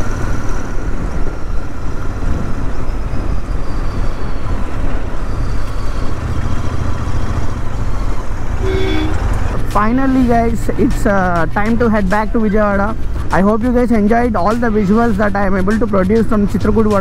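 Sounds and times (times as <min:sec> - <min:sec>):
motorcycle engine running: 0:05.3 - 0:17.0.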